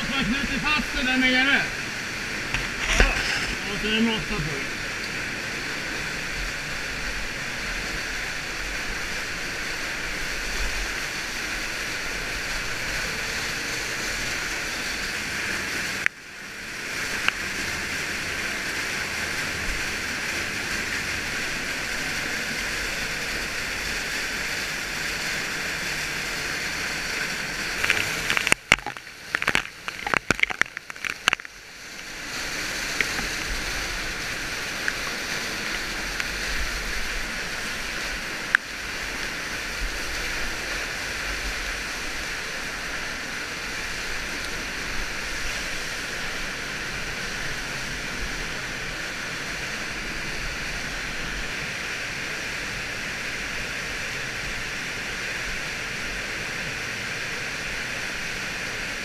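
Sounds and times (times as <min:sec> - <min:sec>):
waterfall rushing: 0:00.0 - 0:59.0
loud crackles: 0:02.4 - 0:04.5, 0:27.1 - 0:31.6.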